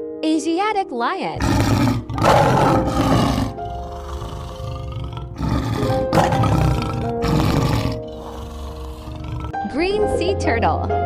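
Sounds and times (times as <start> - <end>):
background music: 0.0 - 11.0
lion calling: 1.4 - 9.6.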